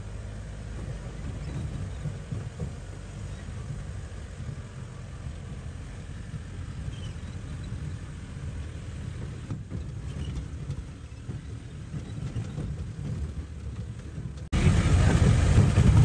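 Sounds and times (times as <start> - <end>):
vehicle engine and tyres rumbling: 0.0 - 16.0.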